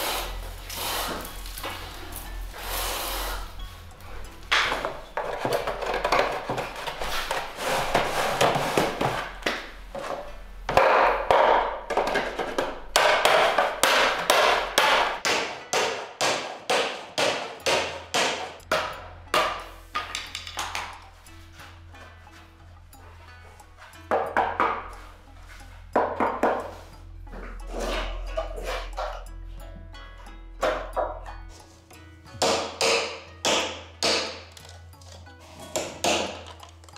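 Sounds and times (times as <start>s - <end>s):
mallet striking wooden drum hoop: 10.7s - 21.1s, 24.0s - 25.1s, 25.9s - 27.6s, 32.3s - 34.5s.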